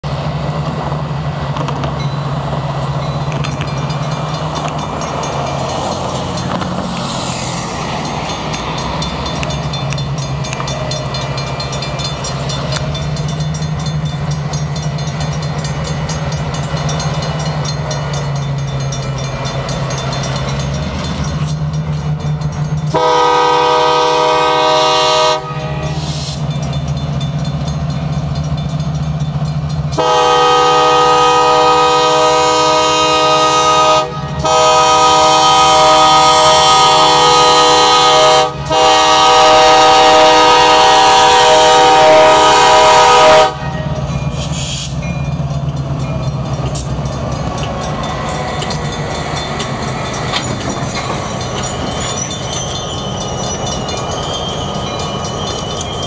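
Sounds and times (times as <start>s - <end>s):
diesel locomotives rumbling: 0.0s - 56.0s
railroad crossing bells ringing: 0.5s - 56.0s
locomotive air horn blast: 22.9s - 26.4s, 30.0s - 45.0s.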